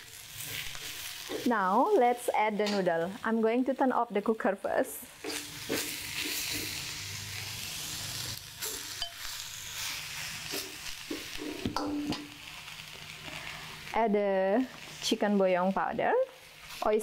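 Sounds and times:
stir-fry sizzling in a wok: 0:00.0 - 0:17.0
metal spatula scraping a wok: 0:05.2 - 0:12.4.

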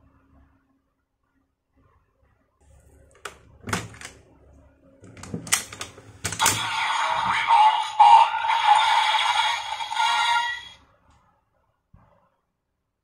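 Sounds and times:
electronic toy sound effect: 0:06.4 - 0:10.8.

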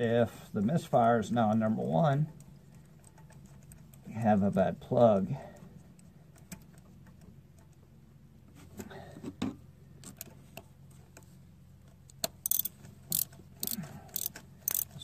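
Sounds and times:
socket ratchet clicking: 0:12.2 - 0:15.0.

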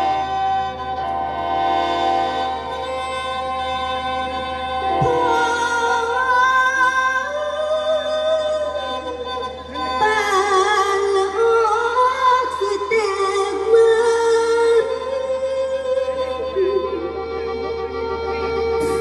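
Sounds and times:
held accompaniment chords: 0:00.0 - 0:13.9.

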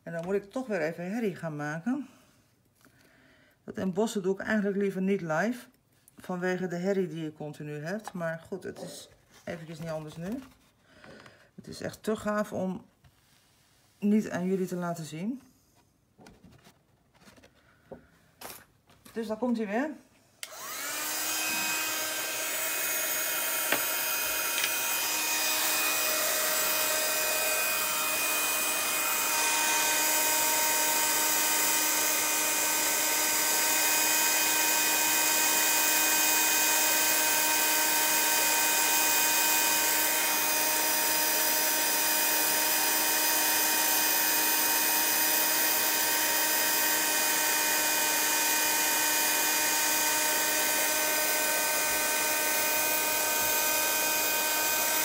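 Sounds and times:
heat gun fan whining: 0:20.4 - 0:55.0.

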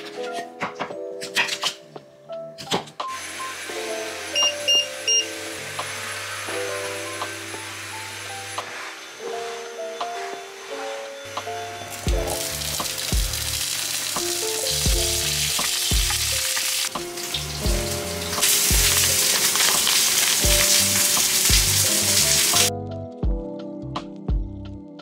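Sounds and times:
background music with steady beat: 0:08.5 - 0:25.0
asparagus sizzling in hot oil: 0:11.9 - 0:22.7.

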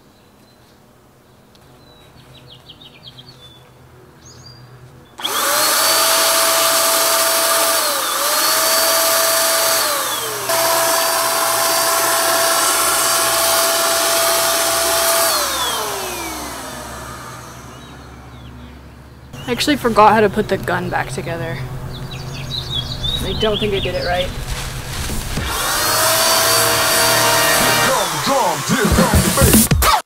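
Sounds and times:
paint sprayer motor whine: 0:05.2 - 0:18.5, 0:25.1 - 0:30.0.

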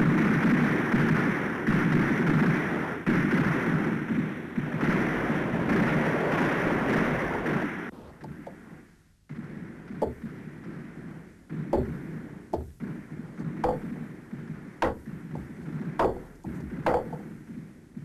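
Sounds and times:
sledgehammer striking tent stakes: 0:11.7 - 0:12.8, 0:14.8 - 0:17.2.

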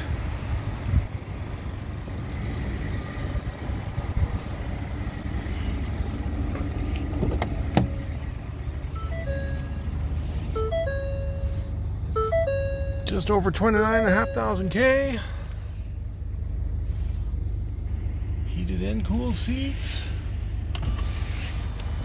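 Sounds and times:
electronic warning chime tones: 0:09.0 - 0:09.8, 0:10.5 - 0:14.9
low rumble: 0:14.2 - 0:22.0.

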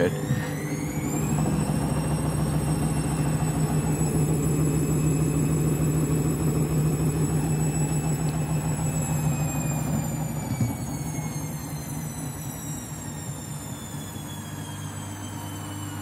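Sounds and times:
washing machine spinning: 0:00.0 - 0:16.0.

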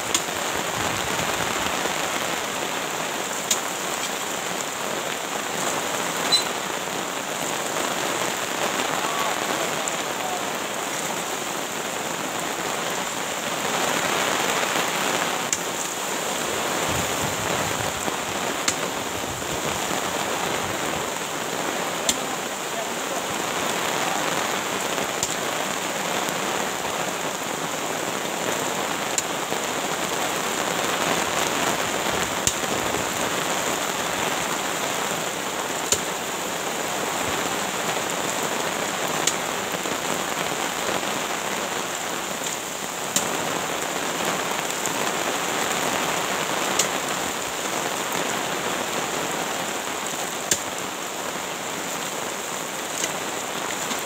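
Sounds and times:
heavy rain: 0:00.0 - 0:54.0.

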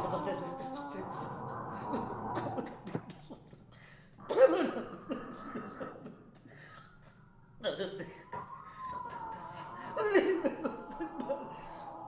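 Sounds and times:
wordless human vocal sounds: 0:00.0 - 0:12.0.

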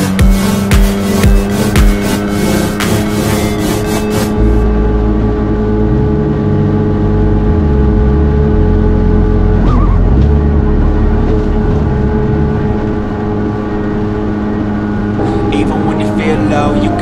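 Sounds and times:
water spray: 0:00.0 - 0:04.4
jet ski engine running: 0:00.0 - 0:17.0.

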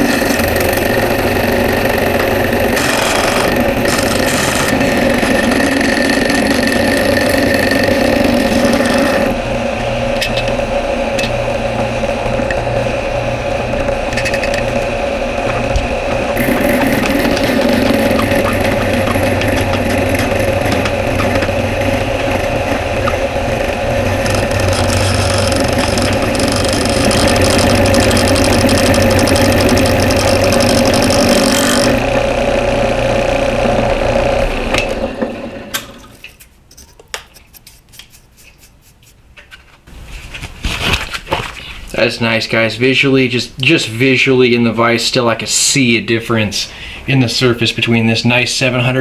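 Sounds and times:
drill press motor hum: 0:00.0 - 0:36.2.

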